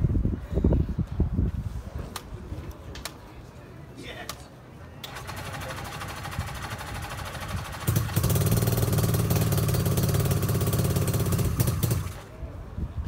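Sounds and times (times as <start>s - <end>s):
motorcycle engine running: 5.2s - 12.3s.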